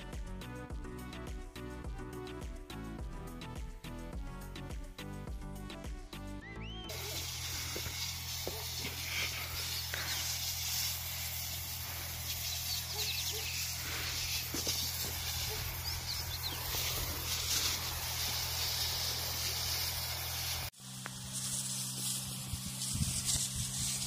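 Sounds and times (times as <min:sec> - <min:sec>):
pump droning: 0:06.9 - 0:24.0
spray gun hissing: 0:06.9 - 0:24.0.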